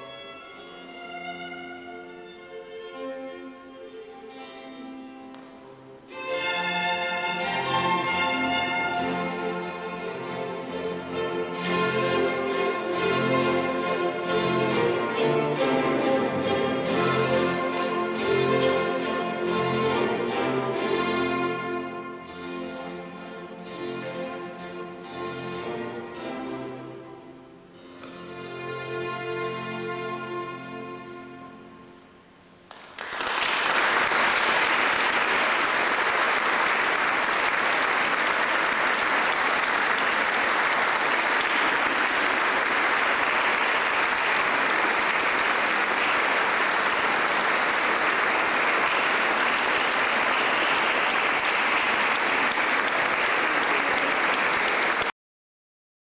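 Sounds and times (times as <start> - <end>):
audience applause: 32.7 - 55.1.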